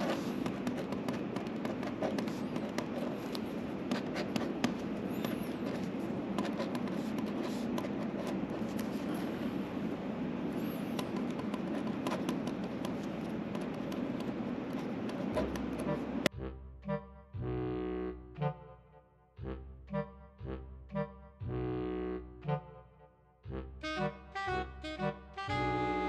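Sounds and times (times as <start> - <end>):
ballpoint pen writing on paper: 0.0 - 9.5, 10.6 - 16.2
low background noise: 0.0 - 16.3.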